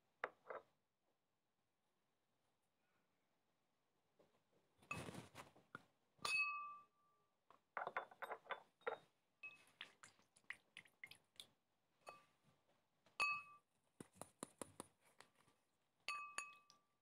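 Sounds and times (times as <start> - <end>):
glass clinking on glass: 6.2 - 6.9, 13.2 - 13.6, 16.1 - 16.8.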